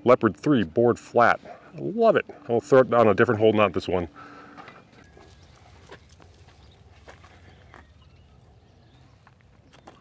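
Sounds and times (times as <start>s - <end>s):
faint footsteps: 3.7s - 10.0s.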